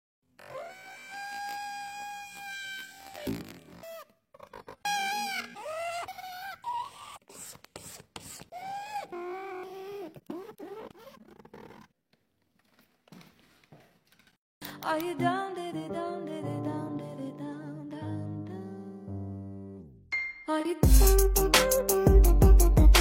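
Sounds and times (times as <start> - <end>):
felt marker squeaking on paper: 0.4 - 11.9
marker scratchy rubbing: 1.1 - 11.9.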